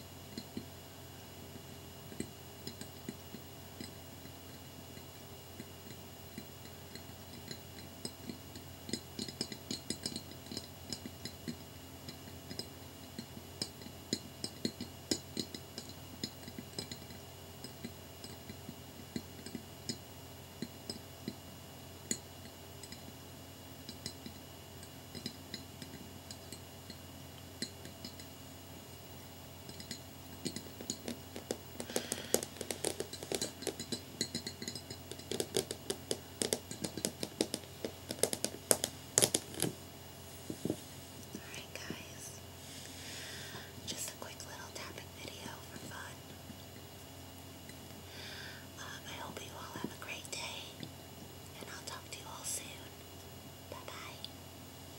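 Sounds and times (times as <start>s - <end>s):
fingernails tapping on glass mirror: 29.7s - 39.8s.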